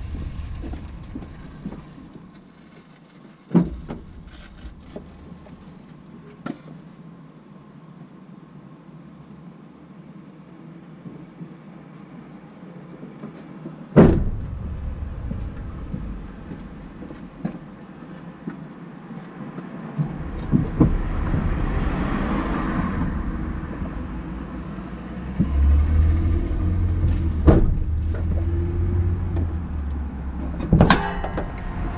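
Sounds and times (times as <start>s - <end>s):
sharp exhaust pops: 0.0s - 6.8s, 14.0s - 18.6s, 20.0s - 31.9s.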